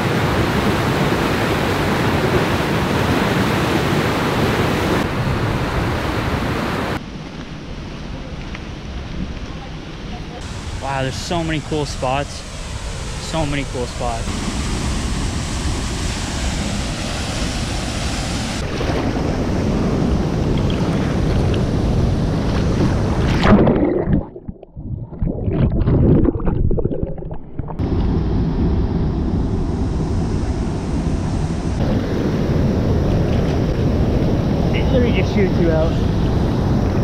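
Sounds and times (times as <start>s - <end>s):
waterfall and rushing white water: 0.0s - 7.0s, 10.4s - 19.6s
muffled underwater bubbling: 23.2s - 27.8s.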